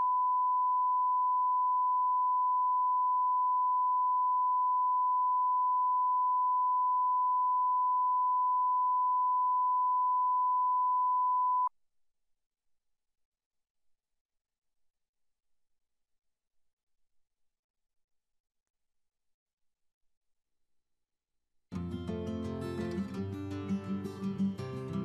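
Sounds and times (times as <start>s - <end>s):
steady sine reference tone: 0.0s - 11.7s.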